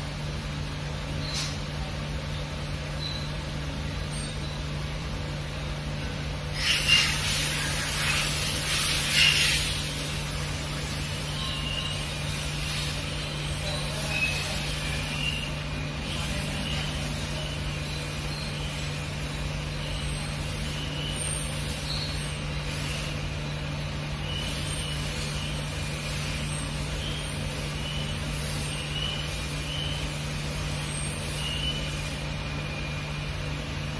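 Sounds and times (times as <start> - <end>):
low hum with hiss: 0.0 - 33.9
faint high chirps: 2.3 - 4.8, 11.2 - 12.2, 26.4 - 30.2, 30.8 - 33.4.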